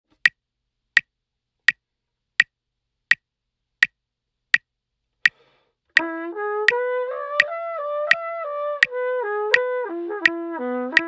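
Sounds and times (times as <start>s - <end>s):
metronome clicking: 8.8s - 11.0s.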